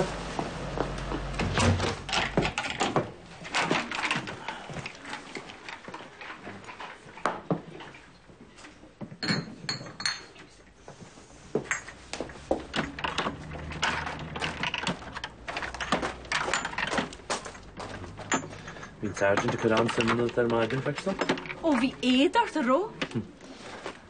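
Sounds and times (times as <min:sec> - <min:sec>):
glass bottles clinking: 0:09.0 - 0:10.6, 0:11.6 - 0:22.3.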